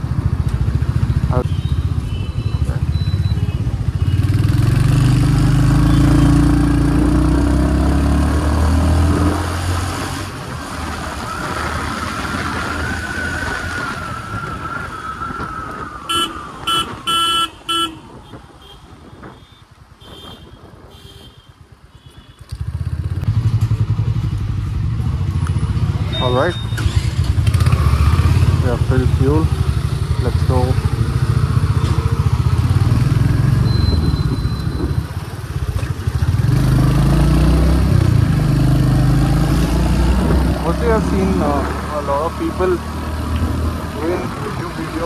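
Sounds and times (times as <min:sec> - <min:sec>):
horn short beeps: 0:01.4 - 0:04.3, 0:26.1 - 0:26.9, 0:33.6 - 0:35.2.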